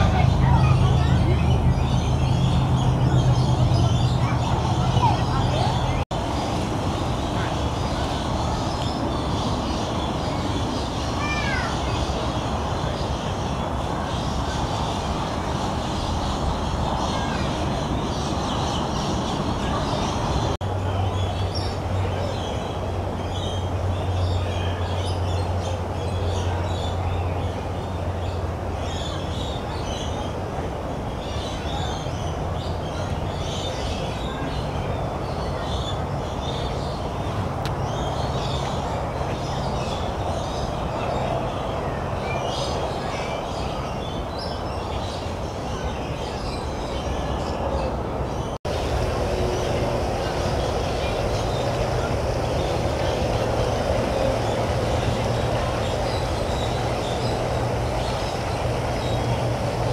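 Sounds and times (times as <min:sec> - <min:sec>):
small birds chirping: 0:00.0 - 0:30.4, 0:31.2 - 0:59.9
low rumbling hum: 0:48.0 - 0:59.9.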